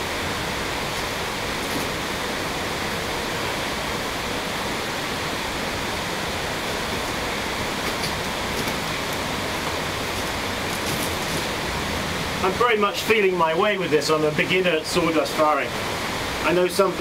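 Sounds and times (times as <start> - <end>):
steady rushing hiss: 0.0 - 17.0
faint short rustles: 10.1 - 11.6.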